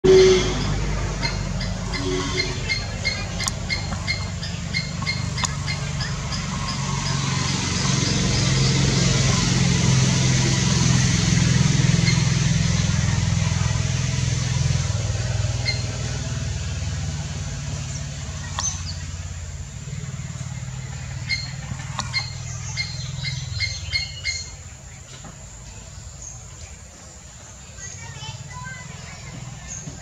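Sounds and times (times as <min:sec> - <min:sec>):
vehicle engine drone: 0:00.0 - 0:30.0
small bird chirping: 0:01.2 - 0:09.0, 0:17.8 - 0:30.0.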